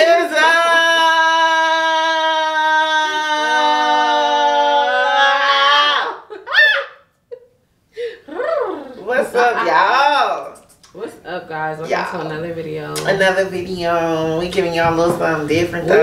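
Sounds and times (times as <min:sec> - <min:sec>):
vocal whoop: 0:00.0 - 0:07.1.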